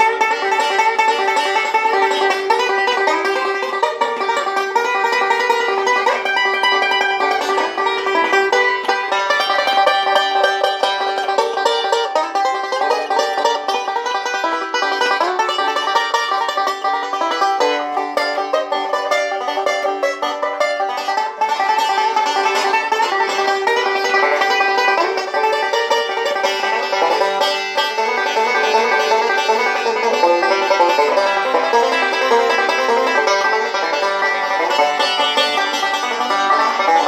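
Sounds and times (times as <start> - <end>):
banjo picked in fast rolls: 0.0 - 37.0.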